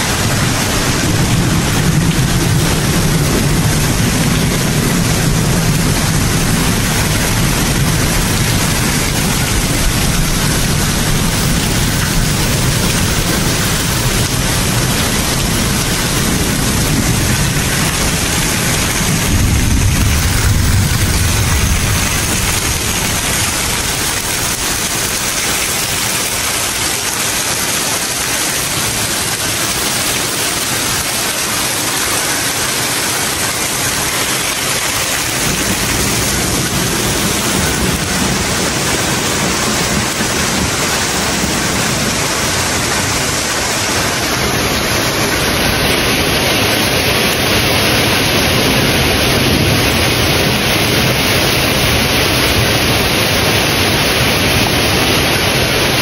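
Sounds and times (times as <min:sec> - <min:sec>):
deep rumble: 0:00.0 - 0:25.2
heavy rain pouring: 0:00.0 - 0:56.0.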